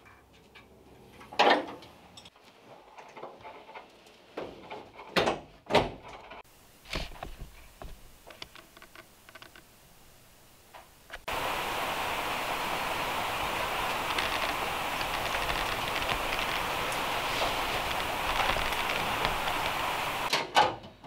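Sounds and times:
loud steady rushing noise: 11.2 - 20.3.

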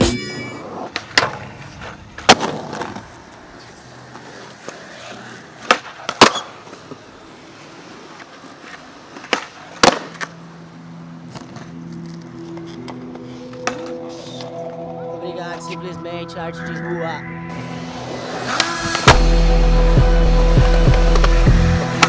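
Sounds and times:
skateboard wheels rolling on pavement: 0.3 - 15.0, 17.5 - 19.7
skateboard wooden clacks: 5.6 - 7.0, 8.2 - 10.4.

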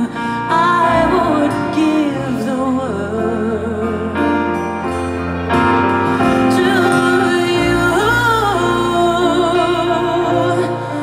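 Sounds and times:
woman singing into microphone: 0.0 - 4.6, 6.1 - 11.0
soft instrumental accompaniment: 0.0 - 11.0.

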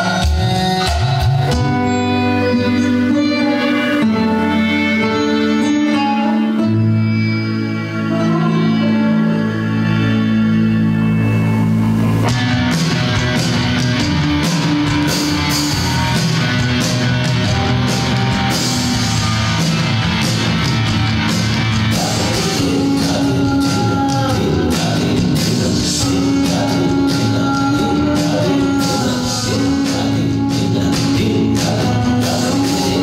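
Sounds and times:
film soundtrack music: 0.1 - 33.0
held drone: 1.7 - 33.0
steady percussion: 12.1 - 33.0.

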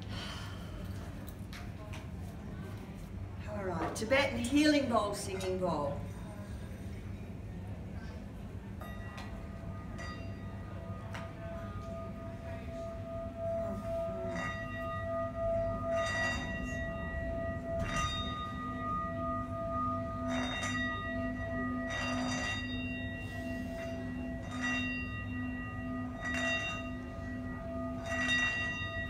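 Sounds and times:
singing bowl ringing: 8.6 - 29.0.

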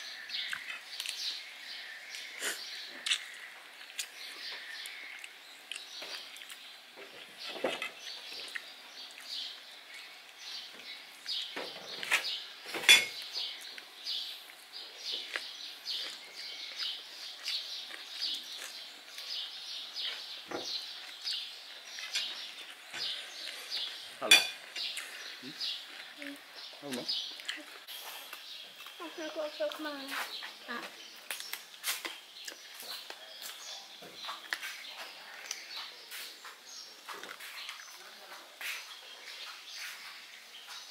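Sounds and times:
small birds chirping: 0.0 - 40.9
plates and cutlery clinking: 12.7 - 13.2, 24.2 - 25.0.

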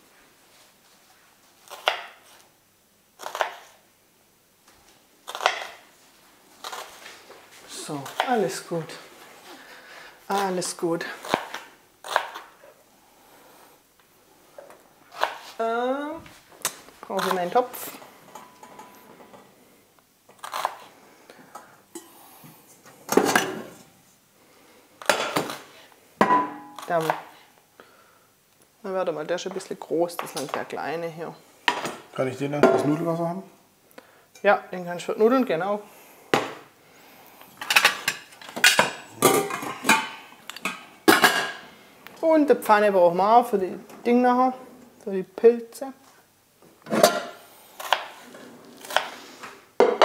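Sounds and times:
metal pots clanking: 37.6 - 41.6, 46.9 - 47.4.

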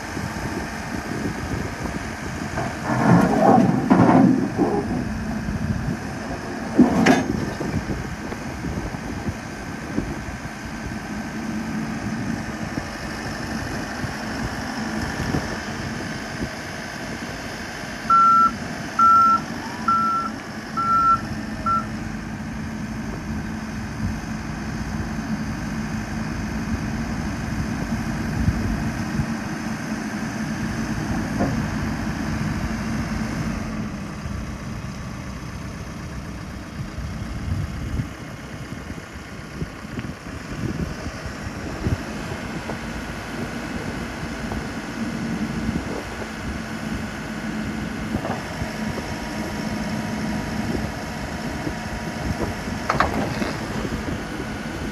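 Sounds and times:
diesel engine running: 0.0 - 54.9
reverse alarm beeping: 18.1 - 21.9.

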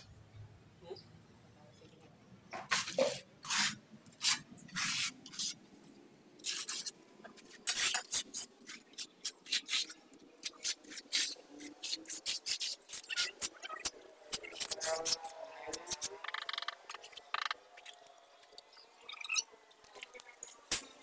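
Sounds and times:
trowel scraping mortar on tile: 6.4 - 16.1.

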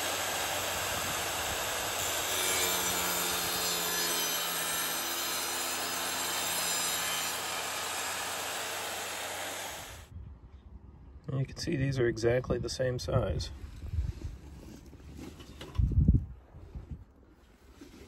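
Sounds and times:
saw blade cutting tile: 0.0 - 10.0
wet tile saw running: 0.0 - 10.1.

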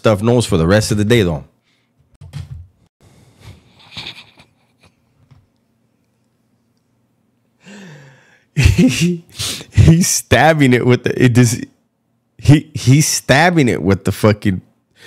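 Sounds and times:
man sighing: 7.6 - 8.5.

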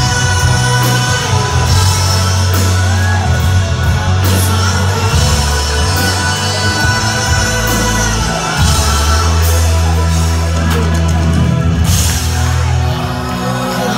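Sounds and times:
man singing: 0.0 - 11.1
live rock band playing: 0.0 - 13.9.

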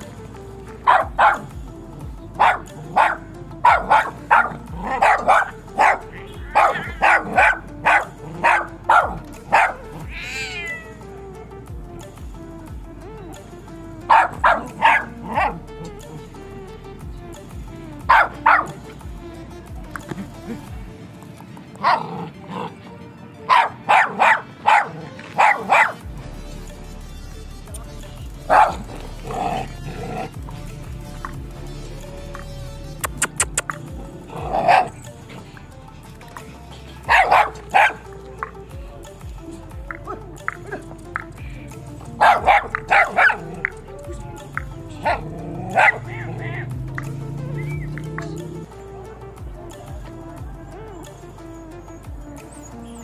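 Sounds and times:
background music: 0.0 - 53.0
dog barking: 0.8 - 1.6, 2.4 - 10.0, 14.1 - 15.6, 18.1 - 18.7, 21.8 - 22.8, 23.4 - 26.0, 28.5 - 30.3, 33.1 - 35.0, 37.0 - 38.1, 42.2 - 43.8, 44.6 - 46.7.

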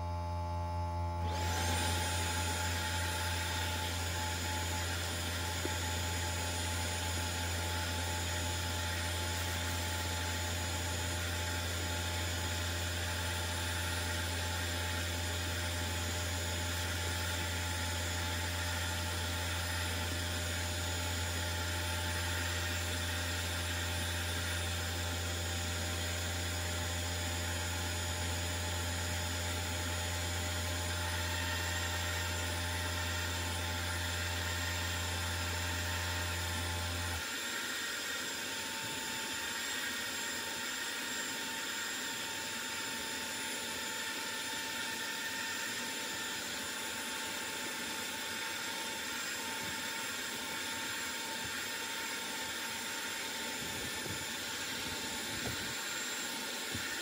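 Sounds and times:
extractor whine and hiss: 15.1 - 57.0.

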